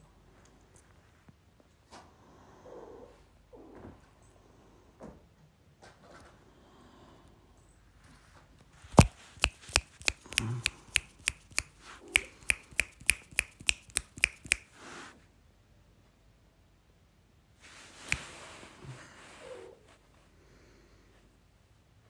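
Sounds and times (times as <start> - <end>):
fingers snapping: 9.0 - 14.7.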